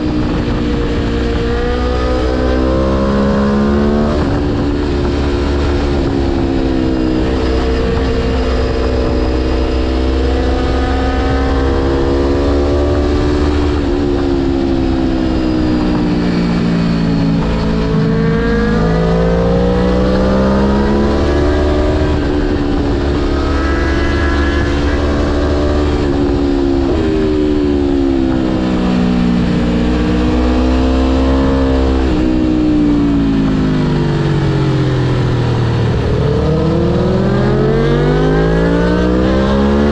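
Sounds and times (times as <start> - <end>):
low wind rumble: 0.0 - 39.9
motorcycle engine revving: 0.0 - 39.9.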